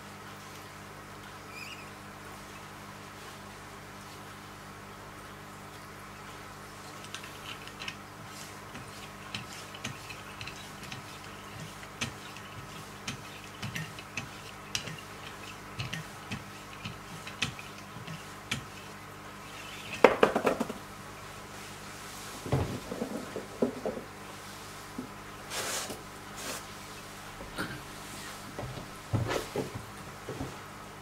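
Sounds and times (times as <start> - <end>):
hard objects knocking: 20.0 - 20.8, 22.5 - 24.1.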